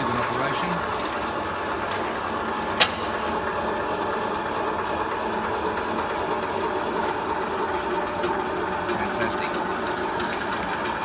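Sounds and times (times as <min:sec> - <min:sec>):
roll former machine running: 0:00.0 - 0:11.0
sharp machine click: 0:02.8 - 0:03.2.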